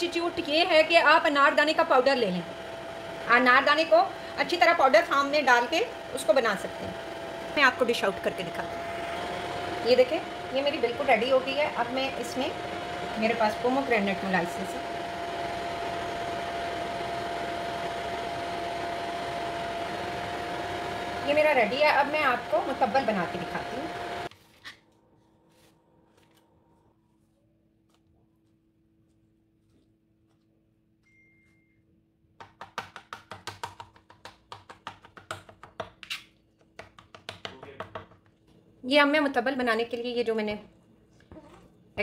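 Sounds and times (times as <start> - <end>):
knife chopping on plastic board: 32.4 - 38.3.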